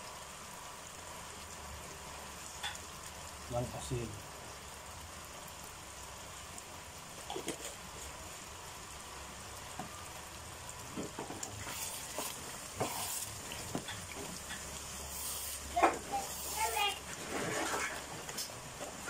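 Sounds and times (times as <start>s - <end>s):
stew bubbling: 5.5s - 19.0s
wooden spatula scraping a pan: 11.0s - 19.0s.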